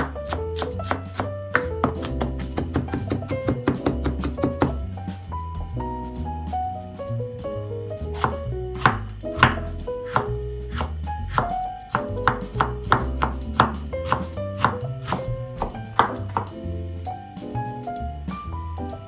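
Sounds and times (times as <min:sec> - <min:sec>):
knife chopping on wooden board: 0:00.0 - 0:04.8, 0:08.2 - 0:16.6
background music: 0:00.0 - 0:19.0.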